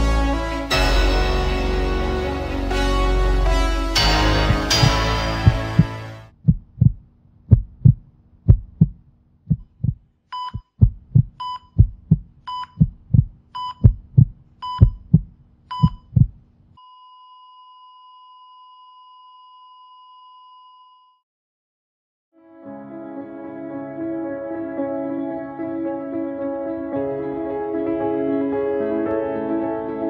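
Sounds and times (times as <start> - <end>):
heartbeat thumps: 4.2 - 16.4
heart monitor beeping: 4.4 - 17.9.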